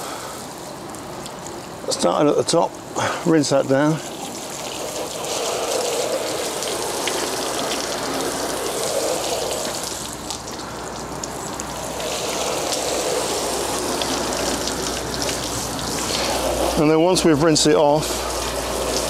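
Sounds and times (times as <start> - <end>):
hose spray spattering on panel: 4.2 - 16.9, 17.8 - 19.0.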